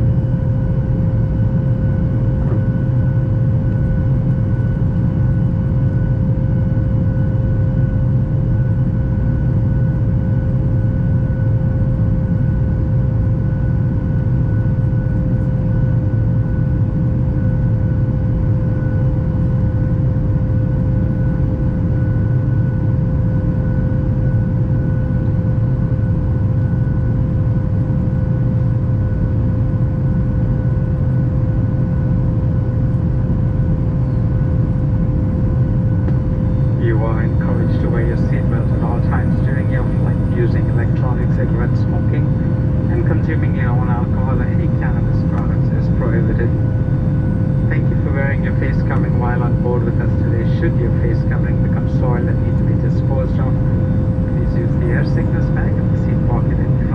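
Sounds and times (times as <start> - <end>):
airplane cabin deep rumble: 0.0 - 56.9
thin steady hum: 33.9 - 56.9.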